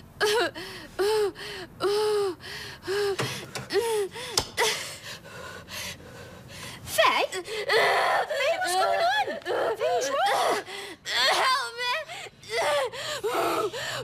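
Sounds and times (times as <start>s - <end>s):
girl whimpering cries and gasps: 0.2s - 14.0s
quiet breathing: 0.6s - 7.7s.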